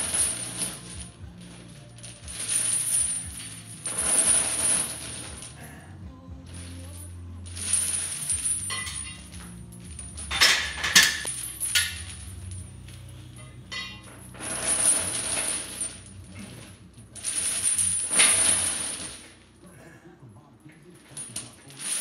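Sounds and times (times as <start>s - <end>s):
steel chains clinking and rattling: 0.0s - 5.6s, 6.4s - 19.5s, 20.9s - 22.0s
sharp metal clanks: 7.5s - 12.8s, 13.4s - 19.4s.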